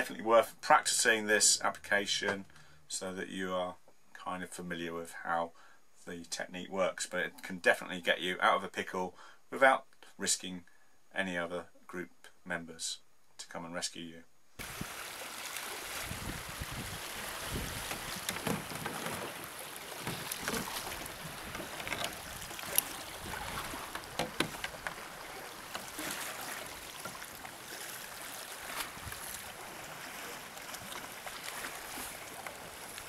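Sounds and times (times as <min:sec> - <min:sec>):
paddle dipping through water: 0:14.6 - 0:33.0
water splashing and lapping: 0:14.6 - 0:33.0.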